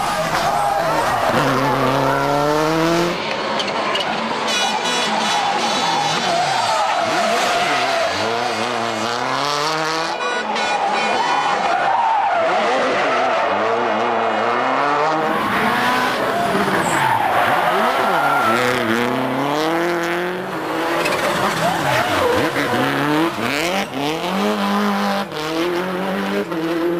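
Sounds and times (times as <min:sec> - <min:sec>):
rally car engine revving: 0:00.0 - 0:26.9.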